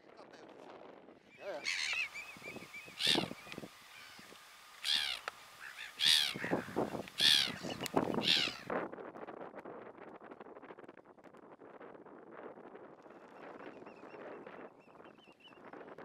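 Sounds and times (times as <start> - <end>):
gulls calling: 1.3 - 8.7.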